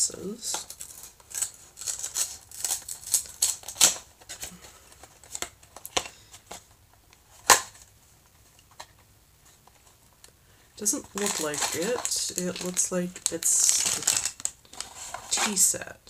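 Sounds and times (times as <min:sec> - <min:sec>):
packaging crinkling and clicking: 0:00.5 - 0:07.9, 0:10.2 - 0:15.7.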